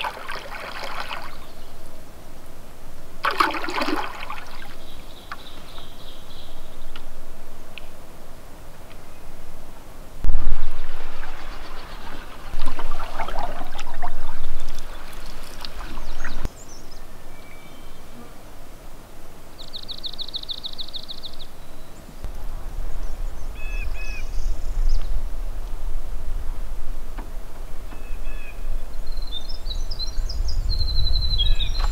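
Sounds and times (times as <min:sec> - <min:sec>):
harsh bird calls: 0:10.9 - 0:18.2.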